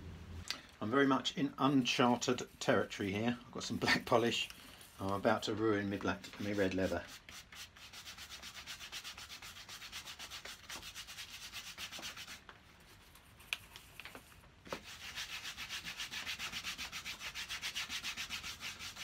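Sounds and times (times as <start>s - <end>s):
polish rubbed on leather: 6.2s - 12.4s, 14.8s - 19.0s.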